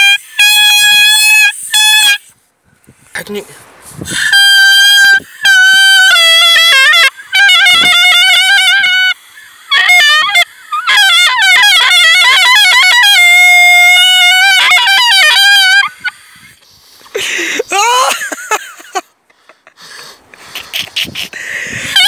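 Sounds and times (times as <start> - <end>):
trumpet-like wind instrument melody: 0.0 - 2.3, 4.1 - 16.1.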